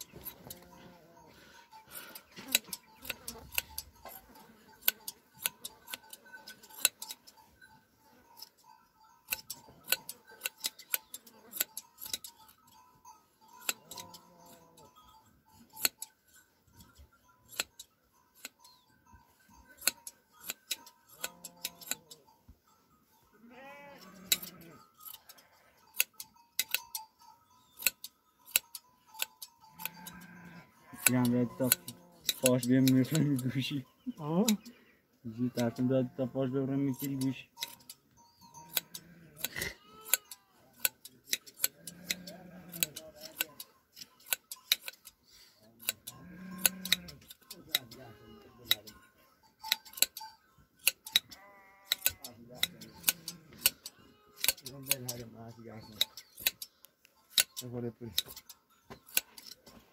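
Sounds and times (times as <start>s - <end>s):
sheep bleating: 0.1s - 1.5s, 13.8s - 15.0s, 21.1s - 22.1s, 23.3s - 25.9s, 29.7s - 32.3s, 35.4s - 36.6s, 38.6s - 40.8s, 41.7s - 43.3s, 46.1s - 48.9s, 51.1s - 54.4s
shears snipping fleece: 1.9s - 7.4s, 9.3s - 12.5s, 13.6s - 14.6s, 15.8s - 16.1s, 16.8s - 18.8s, 19.7s - 22.2s, 24.0s - 27.0s, 27.7s - 30.3s, 31.0s - 33.8s, 38.7s - 49.0s, 49.6s - 59.9s.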